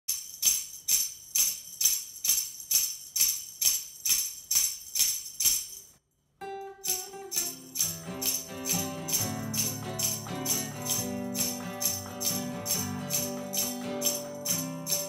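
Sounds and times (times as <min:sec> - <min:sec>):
jingle bells shaken: 0:00.1 - 0:06.0, 0:06.8 - 0:15.0
held musical note: 0:06.4 - 0:15.0.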